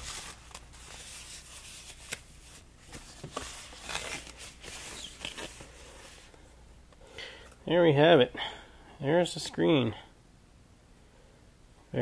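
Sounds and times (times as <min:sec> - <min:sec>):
plastic and foam rustling: 0:00.0 - 0:06.4.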